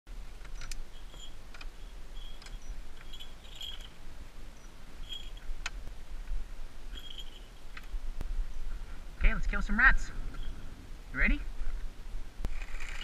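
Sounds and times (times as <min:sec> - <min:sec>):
metal latches clicking and rattling: 0:00.4 - 0:04.0.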